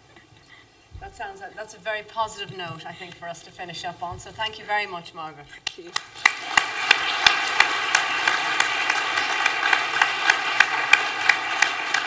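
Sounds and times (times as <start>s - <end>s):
sharp individual claps: 5.6s - 12.0s
audience applauding: 5.9s - 12.0s.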